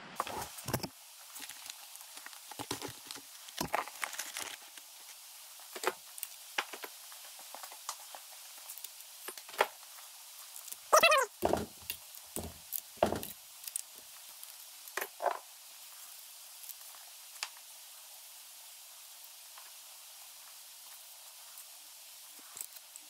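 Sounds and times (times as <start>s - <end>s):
dull knocks: 11.4s - 11.8s.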